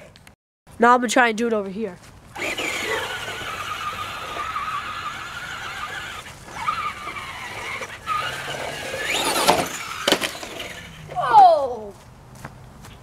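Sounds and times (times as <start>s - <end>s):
electric motor whining: 2.3s - 11.2s.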